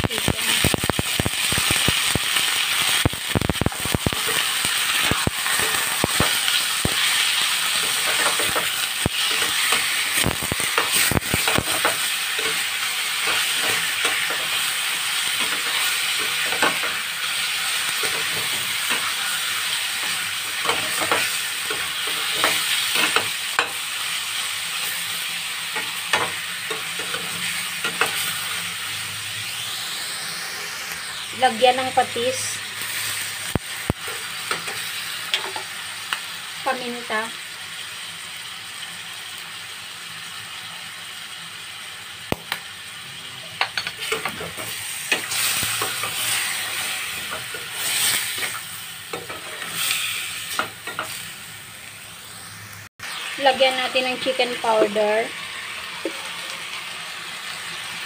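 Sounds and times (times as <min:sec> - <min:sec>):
chicken sizzling in hot oil: 0:00.0 - 0:58.0
stirring knocks and clicks in wok: 0:07.8 - 0:12.6, 0:15.4 - 0:17.0, 0:20.0 - 0:23.8, 0:33.5 - 0:35.7.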